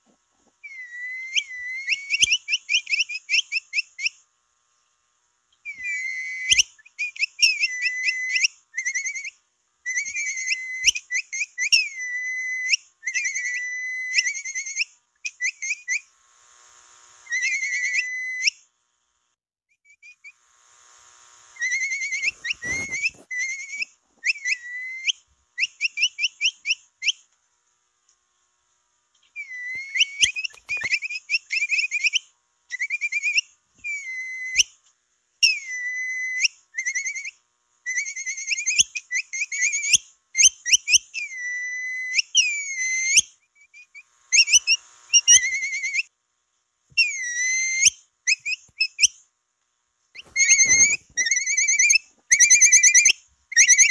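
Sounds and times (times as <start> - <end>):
capybara whistling call: 0.6 - 4.2, 5.6 - 16.1, 17.3 - 18.6, 21.6 - 27.2, 29.4 - 34.8, 35.4 - 46.1, 47.0 - 49.2, 50.2 - 53.9.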